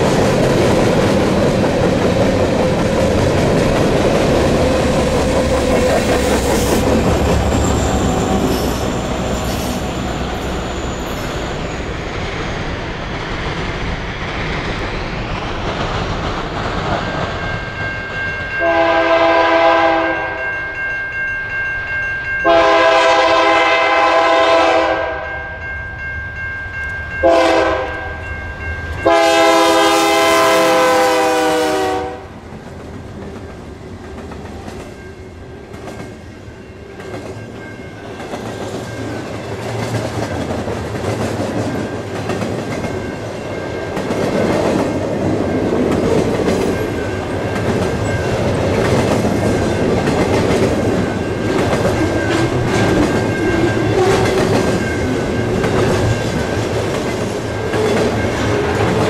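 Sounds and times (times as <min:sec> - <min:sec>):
locomotive air horn blasts: 0:18.6 - 0:20.4, 0:22.4 - 0:25.3, 0:27.2 - 0:28.1, 0:29.0 - 0:32.3.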